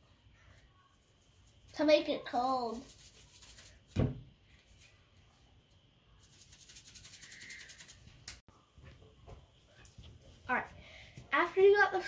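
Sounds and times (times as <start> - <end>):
dull thump: 4.0 - 4.3
salt canister rattling shakes: 6.2 - 8.4.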